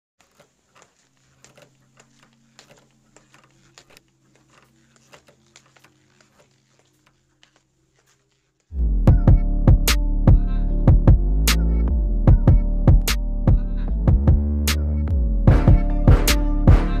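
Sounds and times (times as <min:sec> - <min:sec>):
electronic music with a beat: 0:08.8 - 0:17.0.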